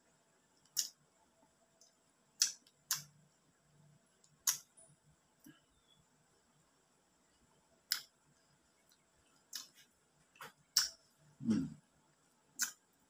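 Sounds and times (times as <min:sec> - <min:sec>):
wet mouth smacks eating mango: 0:02.4 - 0:03.1, 0:10.4 - 0:11.0, 0:12.6 - 0:12.8.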